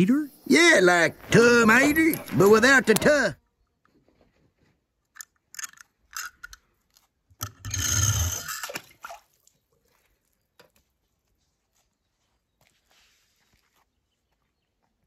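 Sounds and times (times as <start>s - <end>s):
water splashing: 8.4s - 9.9s.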